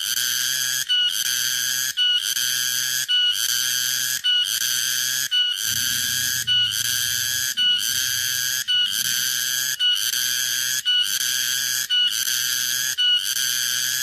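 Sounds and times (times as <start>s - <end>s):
cicada buzzing: 5.6s - 11.5s.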